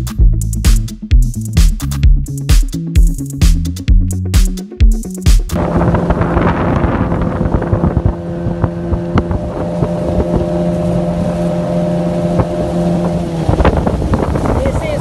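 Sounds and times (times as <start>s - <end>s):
outboard motor running: 5.5s - 15.0s
hull slapping water: 5.6s - 15.0s
wind on microphone: 5.6s - 15.0s.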